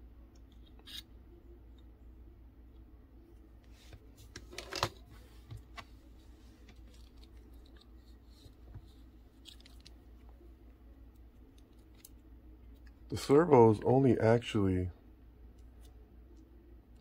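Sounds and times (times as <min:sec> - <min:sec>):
faint steady hum: 0:00.0 - 0:17.0
plastic parts clicking and rustling: 0:04.4 - 0:05.0.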